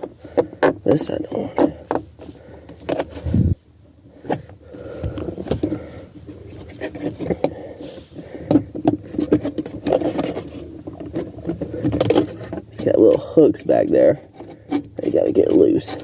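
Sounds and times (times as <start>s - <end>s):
plastic clicks and scrapes: 4.2s - 7.6s, 8.4s - 13.2s, 13.8s - 16.0s.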